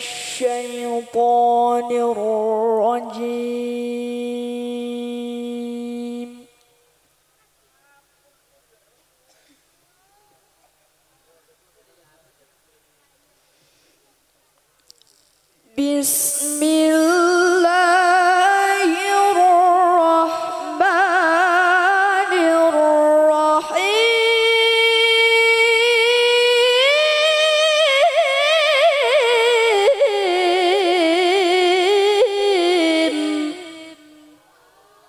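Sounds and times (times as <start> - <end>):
woman reciting melodically: 0.0 - 6.6, 15.6 - 34.4.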